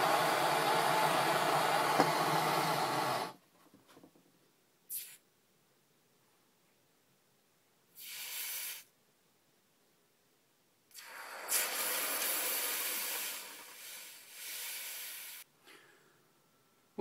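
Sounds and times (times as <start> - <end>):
hot metal hissing in water: 0.0 - 3.3, 8.0 - 8.9, 10.9 - 15.5.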